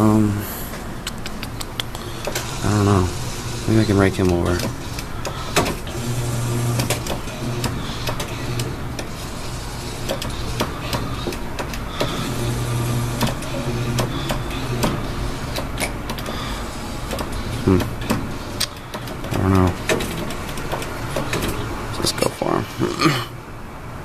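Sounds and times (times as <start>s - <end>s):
claw machine motor whirring: 1.9s - 22.8s
sharp clicks and knocks: 13.2s - 16.4s, 17.1s - 21.6s.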